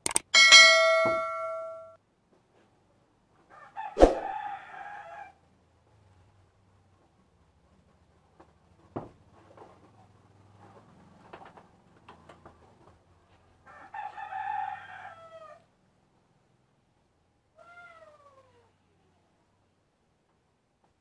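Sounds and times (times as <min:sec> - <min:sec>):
rooster crowing: 0:03.5 - 0:05.4, 0:13.7 - 0:15.6.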